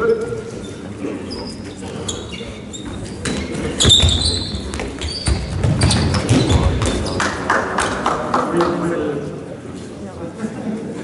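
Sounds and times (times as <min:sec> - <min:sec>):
shoe squeak: 0:00.0 - 0:07.1
handballs bouncing and slapping: 0:03.2 - 0:08.8.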